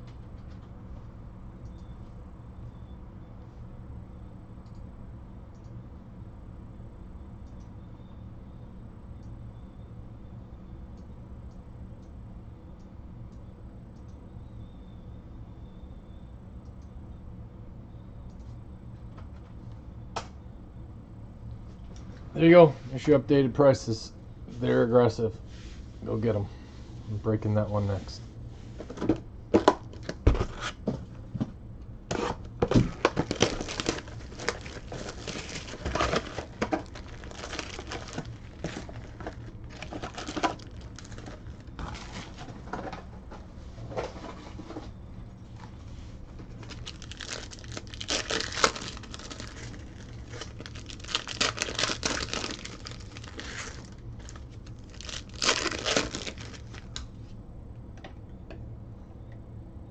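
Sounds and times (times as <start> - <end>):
wrappers crinkling and ripping: 32.1 - 42.5, 46.4 - 57.0.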